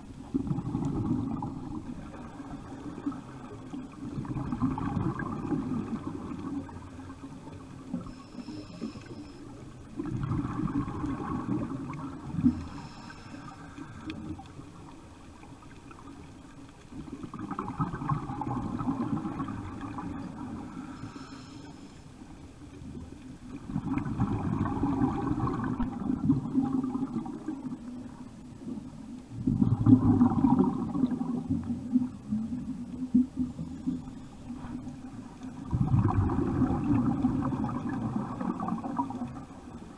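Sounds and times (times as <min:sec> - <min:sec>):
bubbling underwater exhalations: 0:00.2 - 0:06.9, 0:09.9 - 0:12.6, 0:17.2 - 0:20.7, 0:23.6 - 0:27.9, 0:29.3 - 0:33.6, 0:35.5 - 0:39.5
regulator inhalation hiss: 0:08.0 - 0:09.6, 0:12.5 - 0:14.1, 0:20.7 - 0:22.2.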